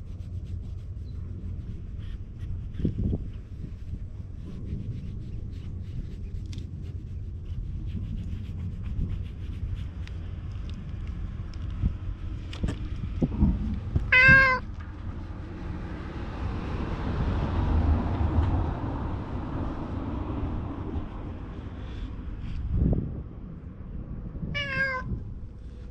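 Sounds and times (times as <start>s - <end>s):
rubbing against camera: 0.0s - 10.9s
cat meowing: 14.1s - 14.7s, 24.5s - 25.2s.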